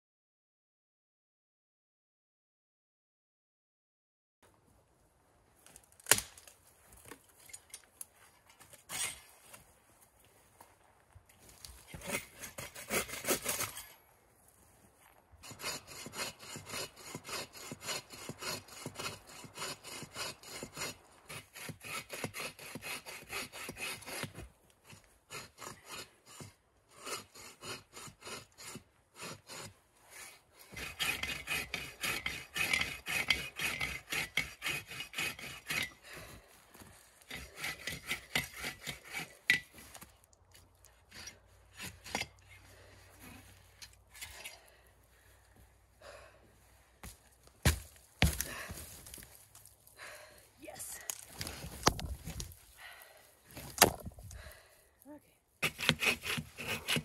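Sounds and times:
hand saw cutting log: 0:11.9 - 0:13.9, 0:15.4 - 0:36.3, 0:37.2 - 0:40.1, 0:40.9 - 0:42.9, 0:47.0 - 0:49.2, 0:55.6 - 0:57.0.

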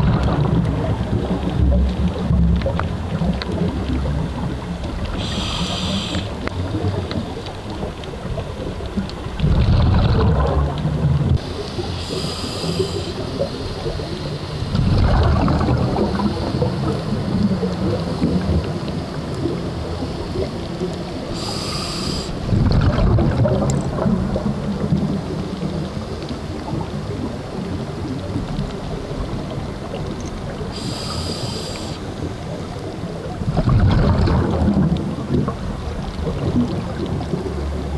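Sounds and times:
exhaled bubbles rumbling: 0:00.0 - 0:37.9
low underwater rumble: 0:00.0 - 0:37.9
regulator hissing inhale: 0:05.1 - 0:06.4, 0:11.8 - 0:14.0, 0:21.3 - 0:22.5, 0:30.7 - 0:32.1.

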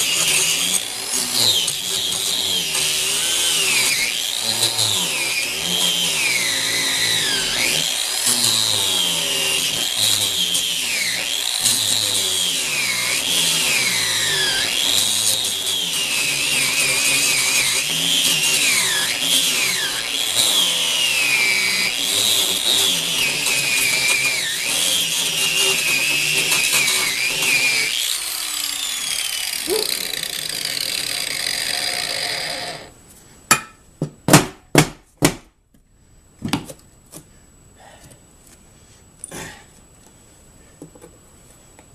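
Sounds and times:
angle grinder grinding metal: 0:00.0 - 0:33.0.

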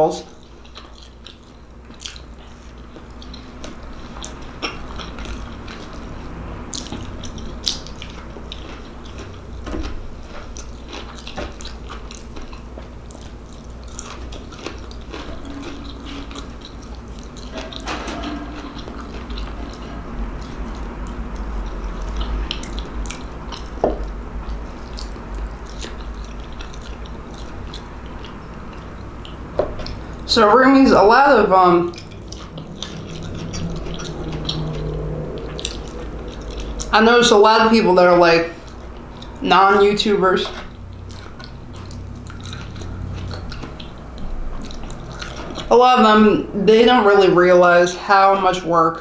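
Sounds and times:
low steady hum: 0:00.0 - 0:49.0
person chewing food: 0:00.3 - 0:30.3, 0:31.6 - 0:37.1, 0:38.5 - 0:45.7.

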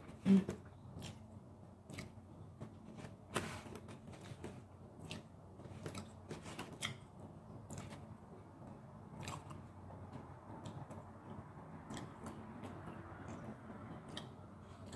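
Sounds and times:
fingers picking through food: 0:00.1 - 0:08.1.

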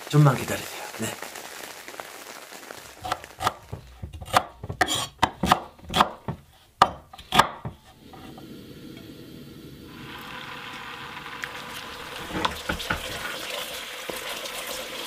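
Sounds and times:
knife dicing onion on wooden board: 0:03.0 - 0:07.9.

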